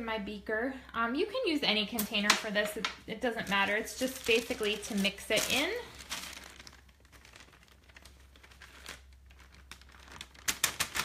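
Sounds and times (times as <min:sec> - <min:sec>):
paper rustling and crinkling: 0:03.4 - 0:11.0.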